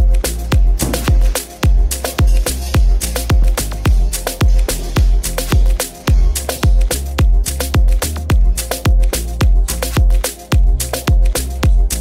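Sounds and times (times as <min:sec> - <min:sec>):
heavy kick drum: 0:00.0 - 0:12.0
sharp percussion hits: 0:00.5 - 0:07.0.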